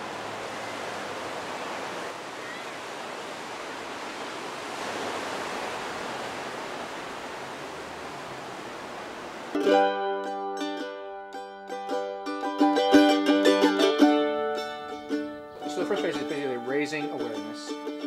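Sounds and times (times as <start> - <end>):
ocean surf washing on shore: 0.0 - 9.6.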